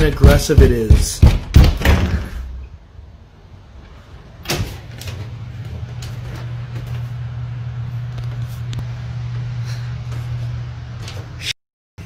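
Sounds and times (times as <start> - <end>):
heavy knocking on wooden door: 0.0 - 2.3
steady low hum: 0.0 - 11.5.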